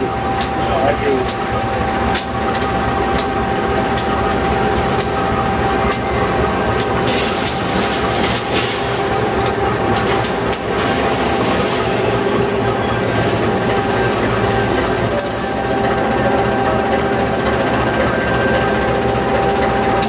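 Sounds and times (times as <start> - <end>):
diesel locomotive engine running: 0.0 - 20.0
thin steady whine: 0.0 - 20.0
wheels clicking over rail joints: 5.8 - 20.0.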